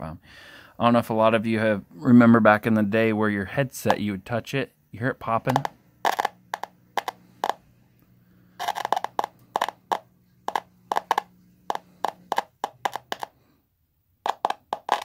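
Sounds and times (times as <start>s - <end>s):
faint steady hum: 0.0s - 15.0s
speaker pops and crackles: 5.4s - 7.6s, 8.6s - 13.3s, 14.3s - 15.0s.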